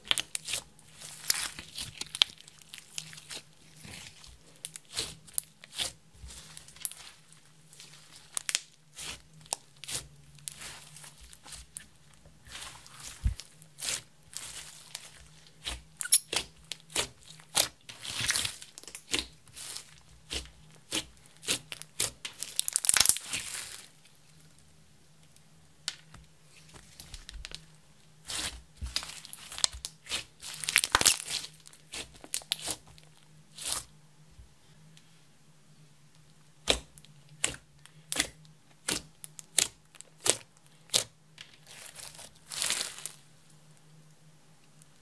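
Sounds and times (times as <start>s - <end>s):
slime crackling and popping: 0.0s - 23.9s, 28.2s - 33.8s, 36.6s - 43.2s.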